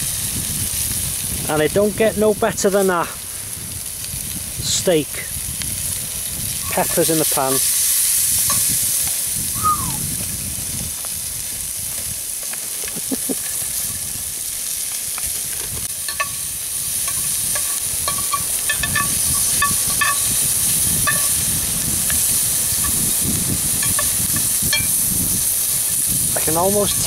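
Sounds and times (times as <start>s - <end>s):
peppers sizzling in frying pan: 0.0s - 27.0s
spatula stirring in pan: 15.9s - 21.4s.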